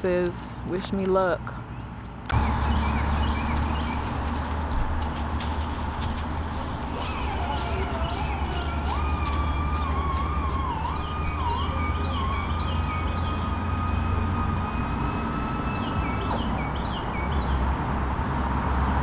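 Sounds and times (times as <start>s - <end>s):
steady low rumble: 2.2s - 17.9s
high wavering tone: 6.9s - 16.9s.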